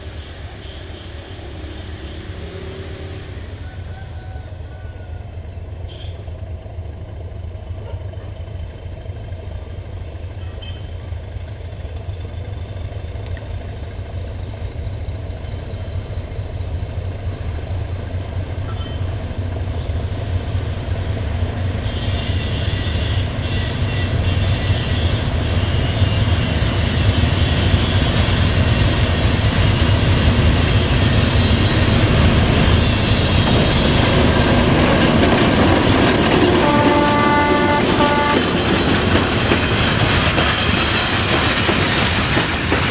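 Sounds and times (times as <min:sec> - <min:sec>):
train horn blast: 0:00.0 - 0:05.1, 0:05.9 - 0:06.3, 0:21.8 - 0:29.4, 0:32.6 - 0:34.1, 0:36.4 - 0:38.7
diesel locomotive engine rumble: 0:00.0 - 0:42.9
freight wagons rolling: 0:32.3 - 0:42.9.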